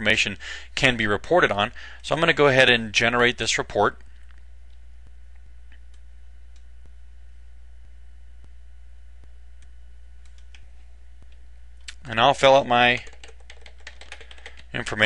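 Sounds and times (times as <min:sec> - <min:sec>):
low electrical hum: 0:00.0 - 0:15.0
computer mouse clicks: 0:09.6 - 0:12.0.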